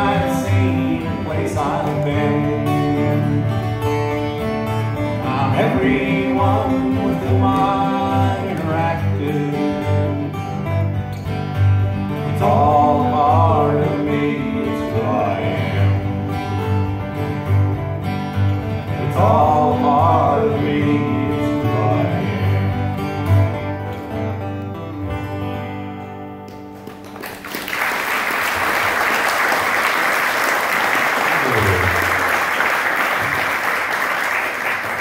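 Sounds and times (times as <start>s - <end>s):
acoustic guitars playing: 0.0s - 35.0s
person singing: 12.3s - 16.1s
audience applause: 26.7s - 35.0s.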